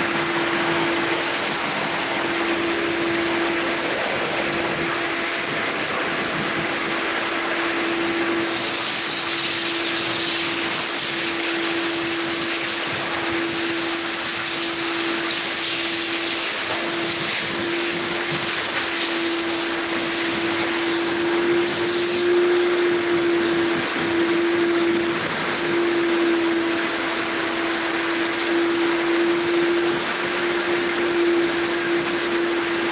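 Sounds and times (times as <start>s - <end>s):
car wash machinery humming: 0.0s - 32.9s
constant machine whine: 0.0s - 32.9s
hissing spray: 1.1s - 2.4s, 8.4s - 22.6s.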